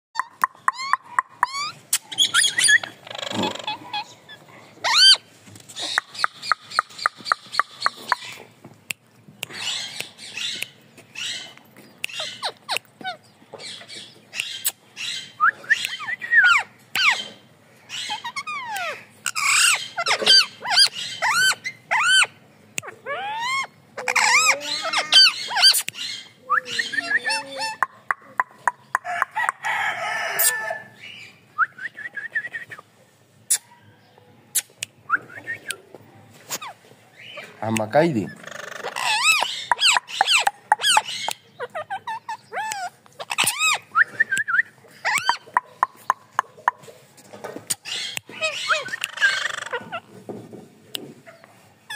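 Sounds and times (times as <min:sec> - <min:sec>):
parakeet screeching: 0:00.7 - 0:04.2, 0:04.8 - 0:05.2, 0:17.9 - 0:22.3, 0:23.1 - 0:27.8, 0:38.3 - 0:43.9, 0:45.0 - 0:45.4, 0:47.8 - 0:50.0.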